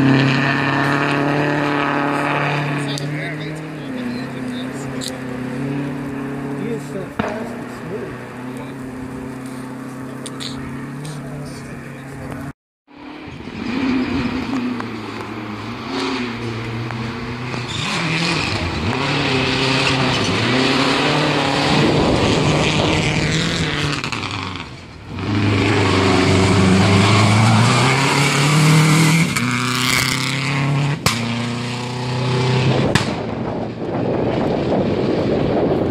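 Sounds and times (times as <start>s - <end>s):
rally car engine revving through gears: 0.0s - 12.5s, 13.2s - 33.7s
sharp crack: 7.1s - 7.9s, 31.0s - 31.5s, 32.8s - 33.4s.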